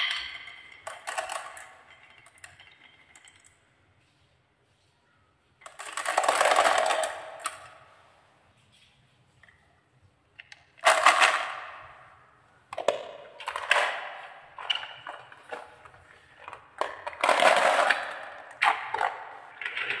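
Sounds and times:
marbles clattering and rolling: 0:00.0 - 0:03.6, 0:05.6 - 0:07.7, 0:10.4 - 0:12.0, 0:12.7 - 0:20.0.

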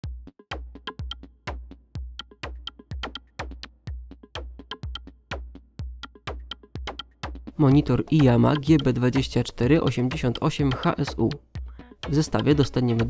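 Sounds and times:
electronic music with drum-machine beat: 0:00.0 - 0:13.0.

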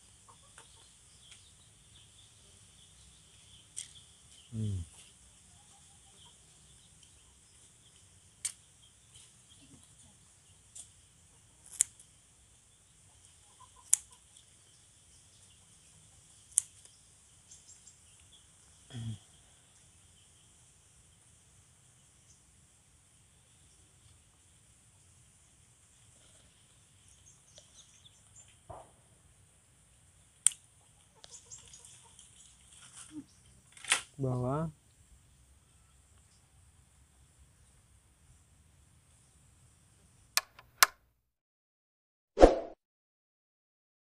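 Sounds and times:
faint chirps: 0:00.0 - 0:11.7, 0:12.5 - 0:22.5
scissors snipping leaves: 0:11.6 - 0:12.0
sharp click: 0:40.4 - 0:41.0.

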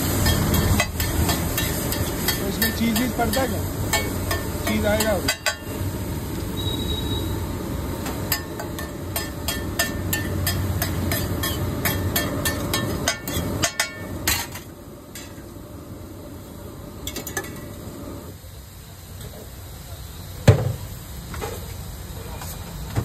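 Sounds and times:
frying sizzle: 0:00.0 - 0:23.0
metal spatula clanking on griddle: 0:00.1 - 0:05.8, 0:08.0 - 0:15.4, 0:17.0 - 0:17.7.

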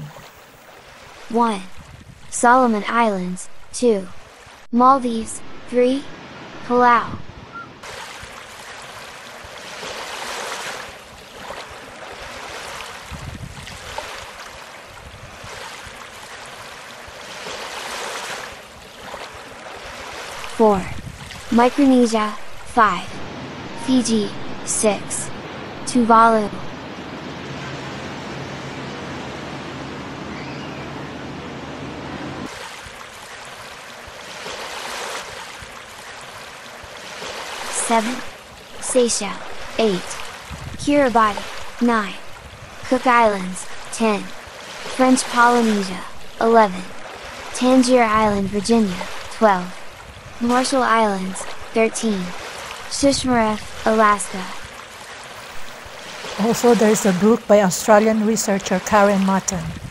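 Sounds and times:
sea waves on rocky shore: 0:00.0 - 0:30.2, 0:32.4 - 0:59.9
low steady hum: 0:20.4 - 0:30.4.

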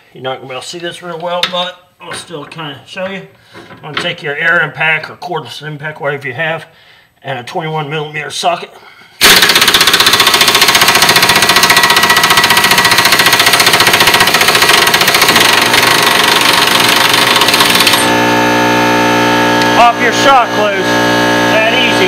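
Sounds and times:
impact wrench hammering: 0:09.2 - 0:18.2.

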